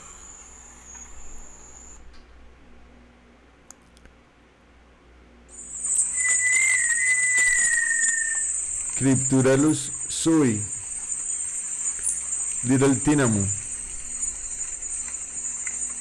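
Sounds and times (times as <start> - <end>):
long clear bird whistle: 0.0 - 2.1, 5.5 - 16.0
high insect buzz: 5.5 - 16.0.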